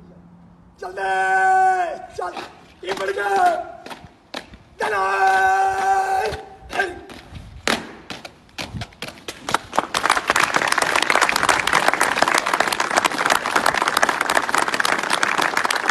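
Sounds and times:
crowd applause: 9.5s - 15.9s.

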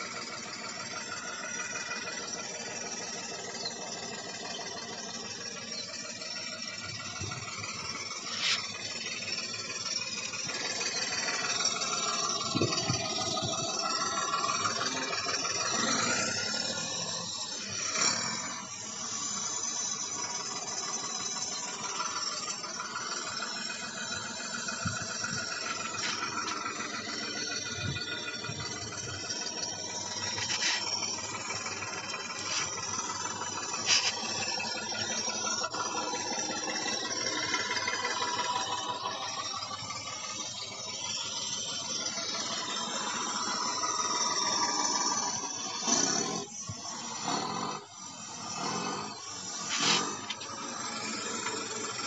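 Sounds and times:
tractor engine through small speakers: 0.0s - 52.0s.

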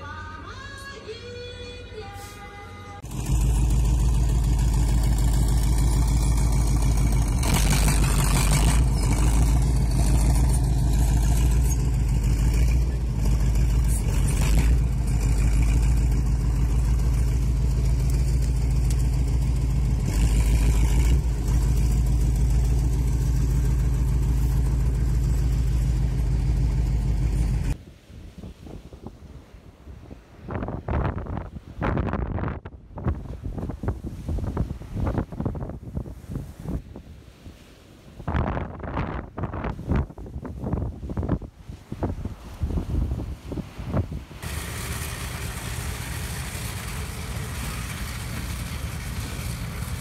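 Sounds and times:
vehicle engine running: 3.0s - 27.8s, 44.4s - 50.0s
rushing noise: 44.4s - 50.0s.

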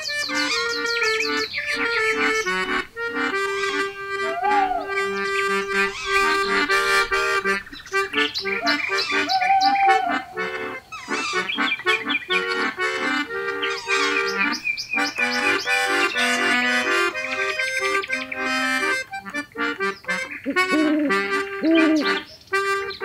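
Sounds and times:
background music melody: 0.0s - 23.0s
rising and falling glides: 4.2s - 5.2s.

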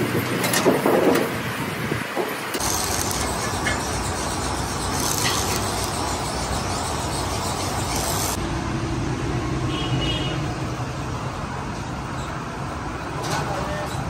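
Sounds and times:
arc welding crackling hiss: 2.3s - 8.4s.

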